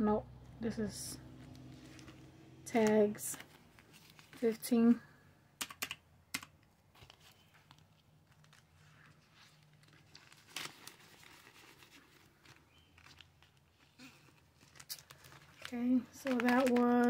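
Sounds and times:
paper money rustling: 1.3 - 4.6, 6.9 - 17.0.

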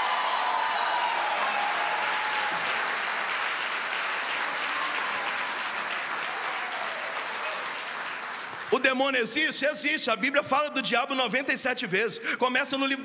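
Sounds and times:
congregation applauding: 0.0 - 9.8.

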